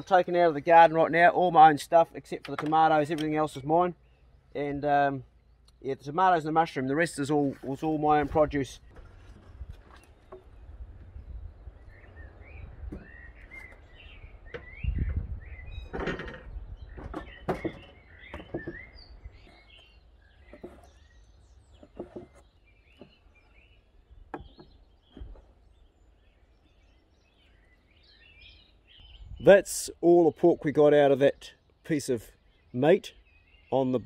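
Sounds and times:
small birds chirping: 0.0s - 34.0s
wooden board thumping down: 12.8s - 13.7s, 15.9s - 19.6s, 20.5s - 20.9s, 21.8s - 22.4s.

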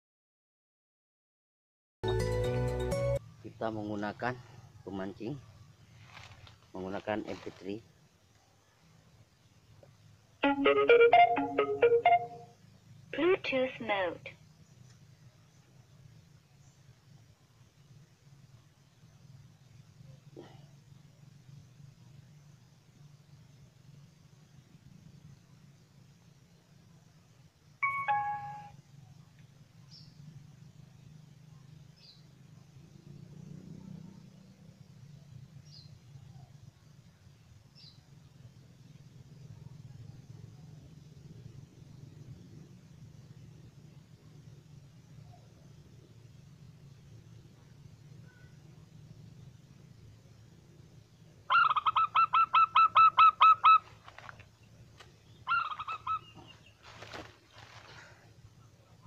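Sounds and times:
electronic chime stepping down: 27.8s - 28.7s
dove call through speaker: 51.5s - 54.4s, 55.2s - 57.3s.

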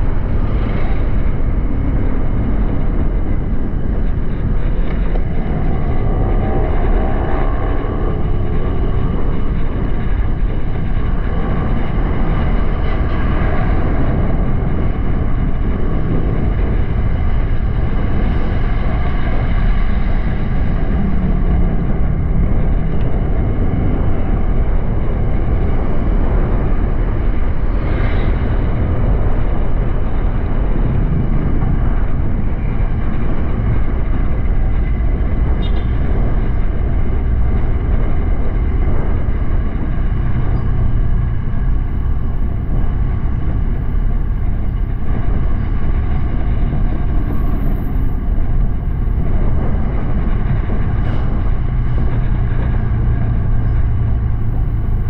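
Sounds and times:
wind and road noise: 0.0s - 55.0s.

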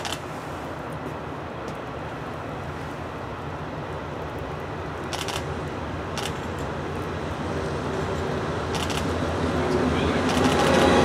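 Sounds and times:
diesel locomotive engine rumble: 0.0s - 11.0s.

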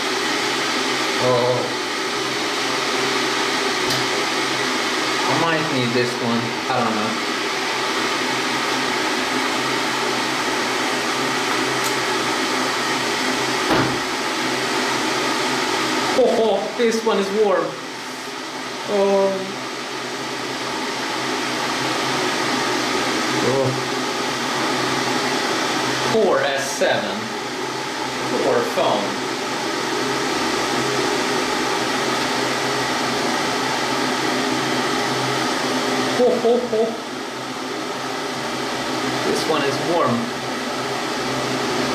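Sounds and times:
water boiler rushing hiss: 0.0s - 41.9s
short knock: 13.7s - 14.0s.

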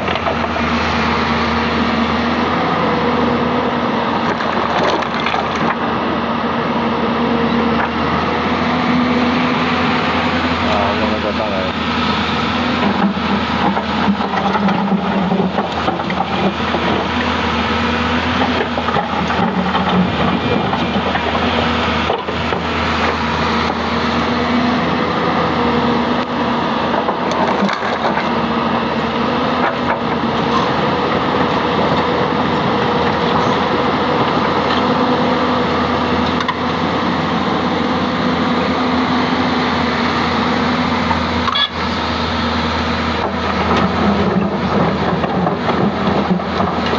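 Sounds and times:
excavator diesel engine running: 0.0s - 46.9s
rocks knocking and clacking: 4.2s - 5.8s, 12.8s - 17.4s, 18.4s - 23.8s, 26.9s - 28.4s, 43.2s - 46.9s.

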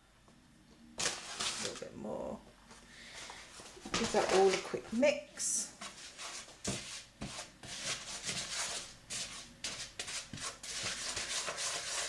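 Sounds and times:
gritty rubbing in plastic bowl: 5.8s - 12.0s.

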